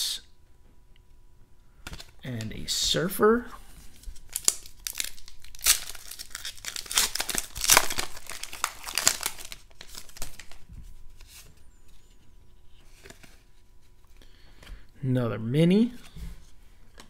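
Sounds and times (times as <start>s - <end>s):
cards rustling: 3.8s - 12.1s
foil wrapper tearing and crinkling: 4.0s - 10.6s.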